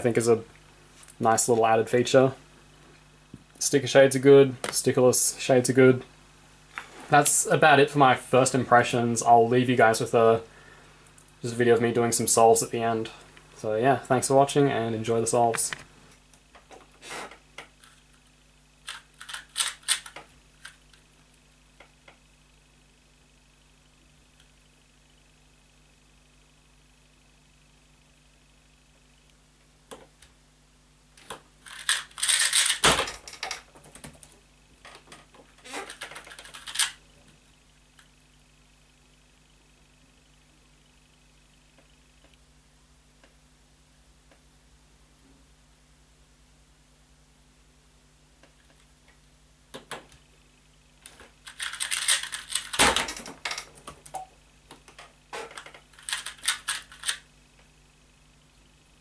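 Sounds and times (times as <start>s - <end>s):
plastic clicking of puzzle cube: 18.9s - 20.8s, 31.2s - 34.2s, 35.8s - 37.0s, 51.0s - 53.7s, 54.8s - 57.2s.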